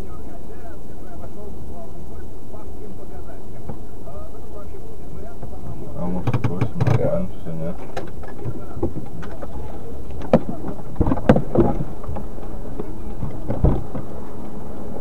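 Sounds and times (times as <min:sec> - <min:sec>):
rumbling inside car: 0:01.1 - 0:15.0
sharp knocks: 0:10.2 - 0:14.1.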